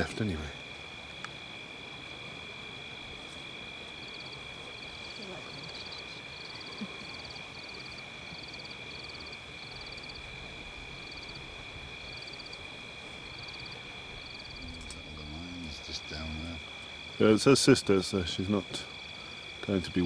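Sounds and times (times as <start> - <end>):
frogs and insects trilling: 0.0 - 20.0
low voice murmuring: 14.5 - 16.6.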